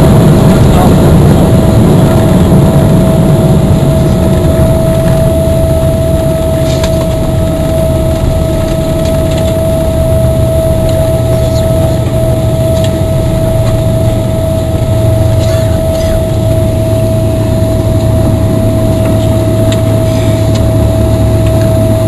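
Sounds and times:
aircraft cabin rumble: 0:00.0 - 0:22.0
constant high tone: 0:03.0 - 0:22.0.

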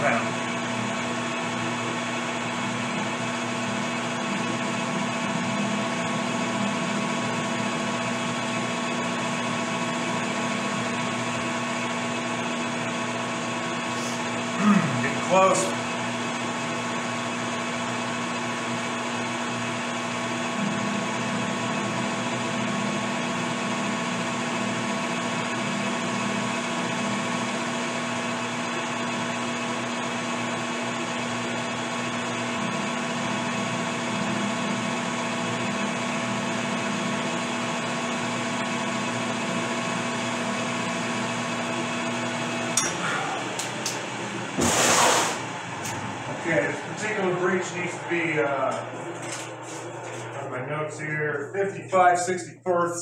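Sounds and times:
metal lathe motor hum and whine: 0:00.0 - 0:50.8.

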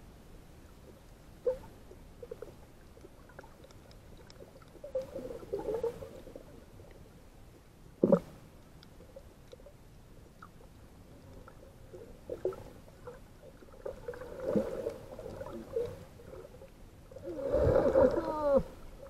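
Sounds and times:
muffled underwater gurgling: 0:17.2 - 0:19.0.

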